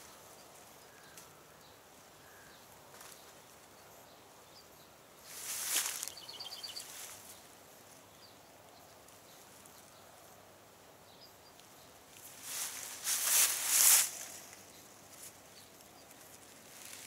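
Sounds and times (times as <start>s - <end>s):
close rustling: 5.3s - 7.4s, 12.2s - 17.0s.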